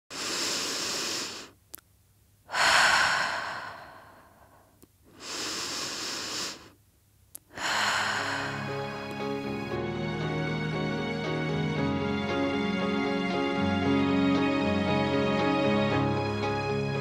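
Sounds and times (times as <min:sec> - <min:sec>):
amplified deep breaths: 0:00.1 - 0:01.6, 0:02.5 - 0:06.8, 0:07.5 - 0:09.8
music: 0:07.6 - 0:17.0.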